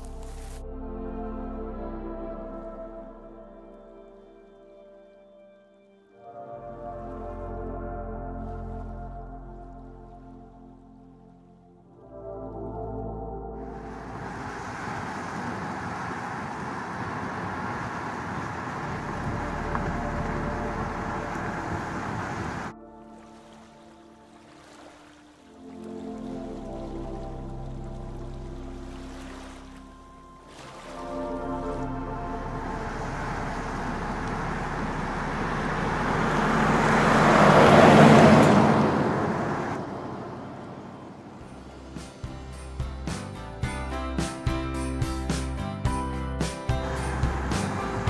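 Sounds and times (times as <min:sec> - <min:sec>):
road noise of moving car: 0:13.6 - 0:22.8, 0:27.8 - 0:42.6, 0:46.7 - 0:48.0
wind buffeting microphone: 0:13.7 - 0:22.7
van passing close by: 0:13.7 - 0:22.8, 0:31.6 - 0:42.0, 0:46.7 - 0:48.0
fluttering low rumble: 0:16.5 - 0:22.8, 0:31.3 - 0:37.4.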